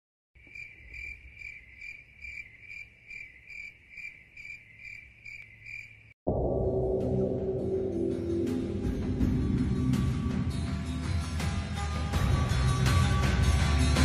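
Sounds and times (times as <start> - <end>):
cricket chirping: 0.4 - 6.2
loud music with low tones: 6.3 - 14.0.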